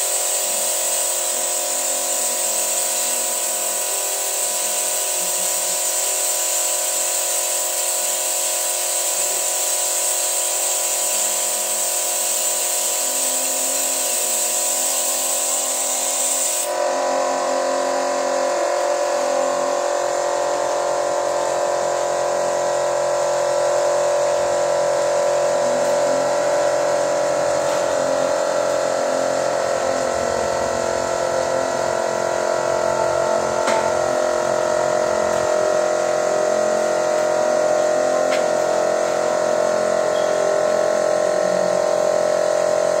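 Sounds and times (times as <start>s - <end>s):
engine running with buzzy whine: 0.0s - 43.0s.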